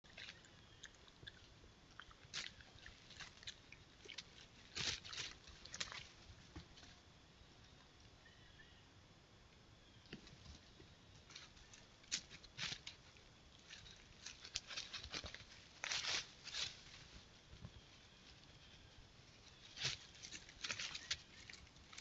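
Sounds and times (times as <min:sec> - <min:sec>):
animal rustling dry leaves: 0:02.2 - 0:06.9, 0:11.2 - 0:22.0.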